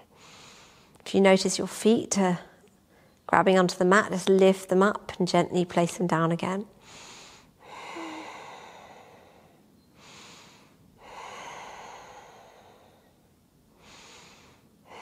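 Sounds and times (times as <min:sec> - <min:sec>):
woman breathing deeply: 0:06.8 - 0:15.0.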